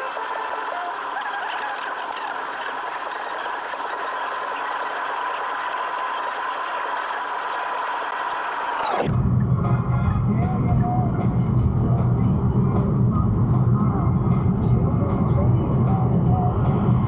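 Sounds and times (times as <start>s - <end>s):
constant whine: 0.0s - 17.0s.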